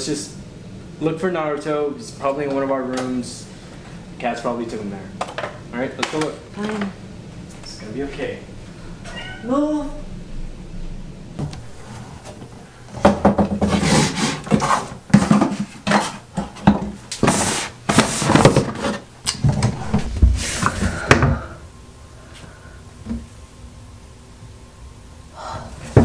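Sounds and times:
drawers and cabinet doors knocking: 0:13.0 - 0:17.0
rummaging clatters and scrapes: 0:13.5 - 0:21.0.

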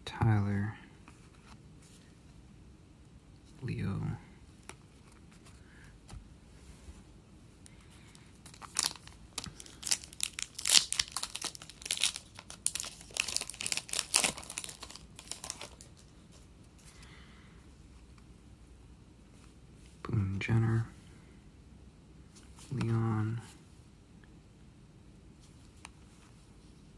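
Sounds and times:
wrapper tearing and crinkling: 0:08.4 - 0:16.1.

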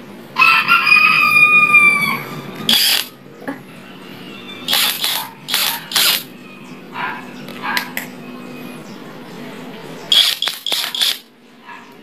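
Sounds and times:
rooster crowing: 0:00.3 - 0:07.8.

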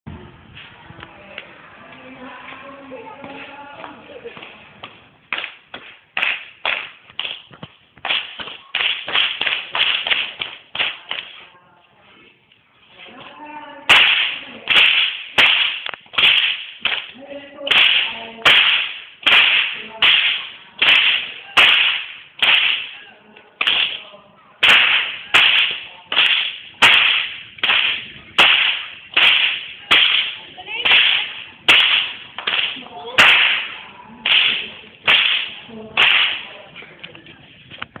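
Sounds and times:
whip cracking with echo: 0:05.3 - 0:11.5, 0:13.9 - 0:36.6.

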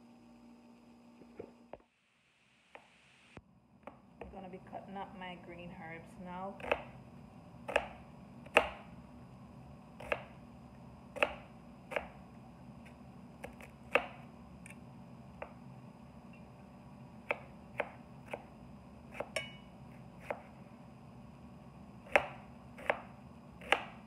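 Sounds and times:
knife slicing onion: 0:06.6 - 0:07.0, 0:07.6 - 0:08.9, 0:10.0 - 0:10.4, 0:11.1 - 0:12.2, 0:12.8 - 0:14.8, 0:17.2 - 0:19.6, 0:20.2 - 0:20.6, 0:22.0 - 0:24.0.

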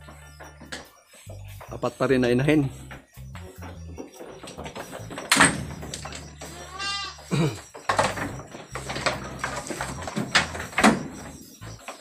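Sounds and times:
goat bleating: 0:06.4 - 0:07.6.

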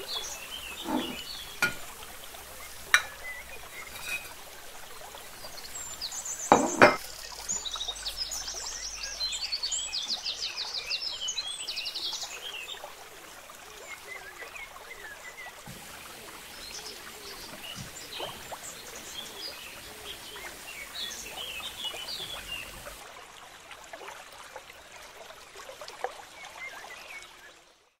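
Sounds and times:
small birds chirping: 0:00.0 - 0:04.4, 0:14.7 - 0:23.0.

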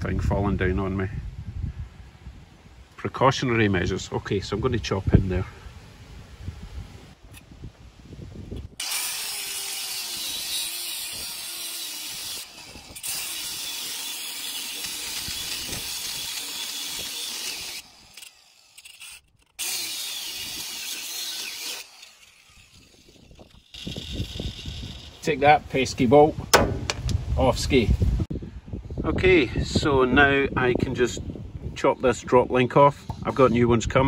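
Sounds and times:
angle grinder cutting steel: 0:08.8 - 0:25.5.

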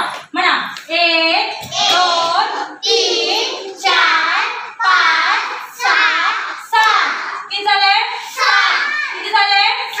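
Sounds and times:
children chanting in unison: 0:01.7 - 0:07.5, 0:08.1 - 0:09.3.

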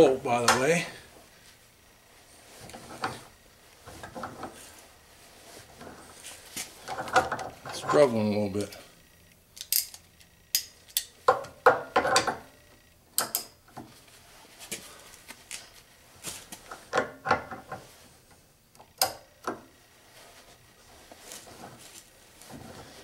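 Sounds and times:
pliers clicking and scraping on bolt: 0:09.6 - 0:12.4, 0:13.2 - 0:13.6.

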